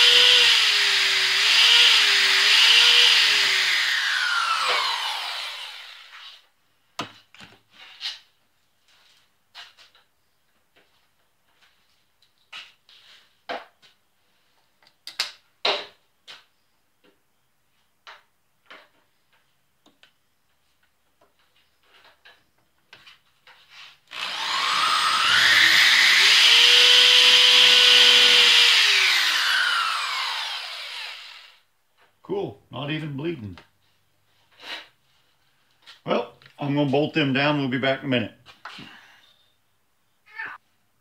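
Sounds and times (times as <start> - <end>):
power drill drilling: 0.0 - 6.4, 24.1 - 31.6.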